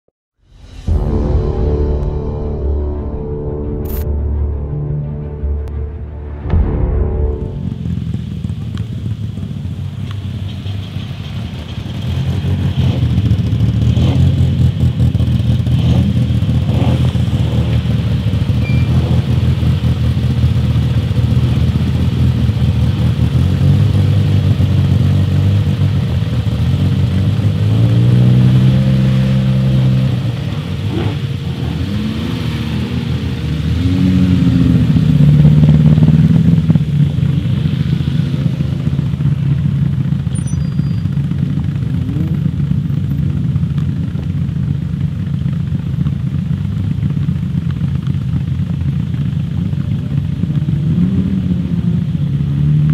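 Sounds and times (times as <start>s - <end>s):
rally car engines revving: 7.3s - 52.9s.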